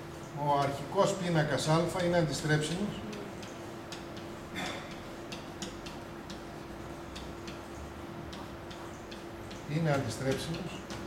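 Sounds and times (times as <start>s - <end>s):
steady hum: 0.0s - 11.0s
pen writing on a whiteboard: 3.1s - 11.0s.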